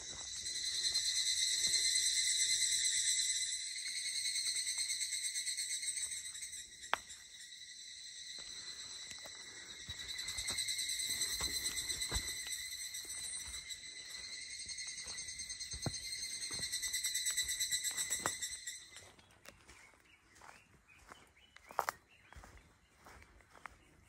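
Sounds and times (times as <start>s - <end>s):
cicadas droning: 0.0s - 24.0s
footsteps on dirt trail: 8.3s - 24.0s.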